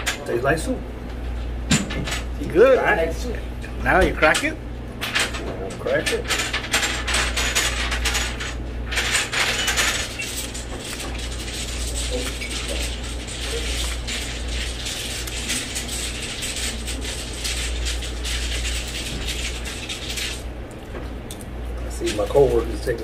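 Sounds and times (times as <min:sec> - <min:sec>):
egg shell crackling: 0:10.0 - 0:20.5.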